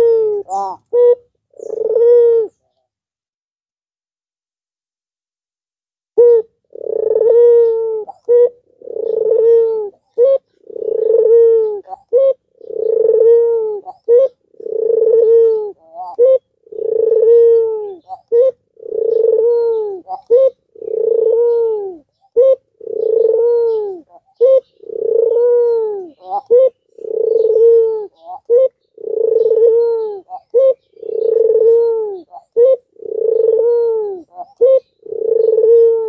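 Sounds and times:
dove cooing: 0.0s - 2.8s, 6.2s - 36.0s.

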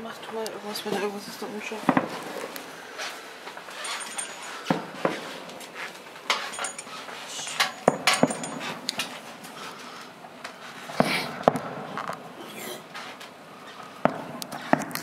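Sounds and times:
fireworks bangs: 1.4s - 9.2s, 10.8s - 13.0s, 13.7s - 15.0s.

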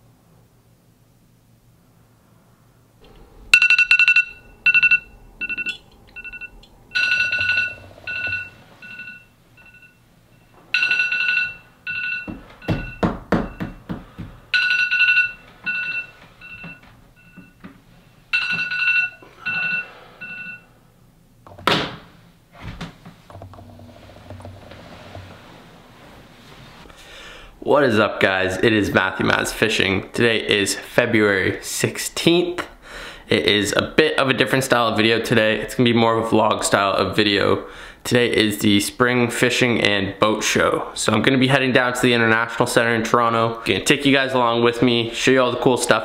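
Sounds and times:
phone alarm two-pitch beeps: 3.6s - 10.9s, 11.9s - 13.8s, 14.6s - 17.6s, 18.4s - 20.7s.

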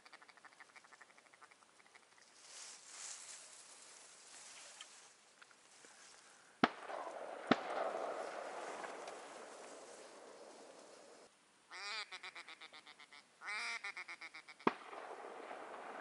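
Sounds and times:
shotgun shots with rolling echo: 6.6s - 11.0s, 14.7s - 16.0s.

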